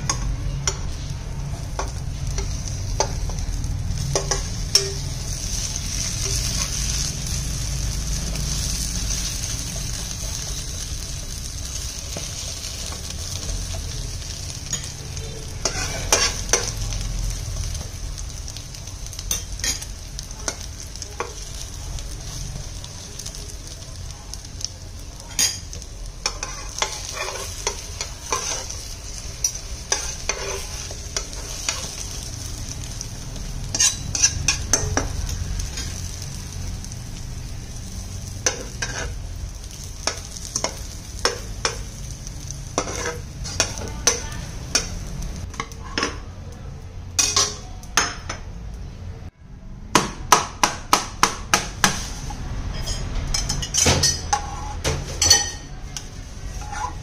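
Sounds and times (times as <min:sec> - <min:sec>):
omelette sizzling in a frying pan: 0:00.0 - 0:48.8, 0:50.3 - 0:57.0
metal spatula scraping a pan: 0:14.7 - 0:16.7, 0:25.3 - 0:32.2, 0:33.6 - 0:36.0, 0:38.4 - 0:41.8, 0:42.8 - 0:44.9, 0:51.9 - 0:57.0.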